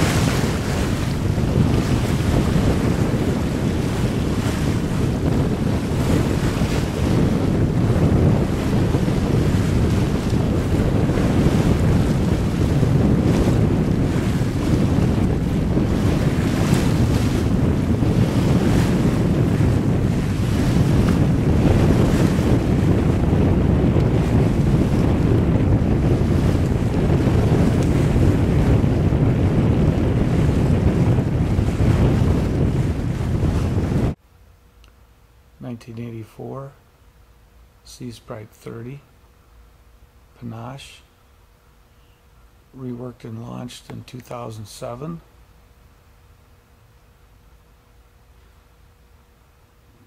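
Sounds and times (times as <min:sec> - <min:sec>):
choppy waves: 0:00.0 - 0:34.2
wind buffeting microphone: 0:00.0 - 0:34.2.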